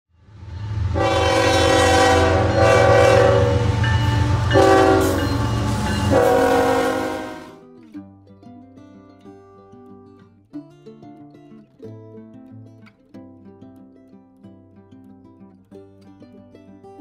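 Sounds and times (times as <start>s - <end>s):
moving train rumble: 0.2s - 7.6s
train horn blowing: 0.4s - 7.6s.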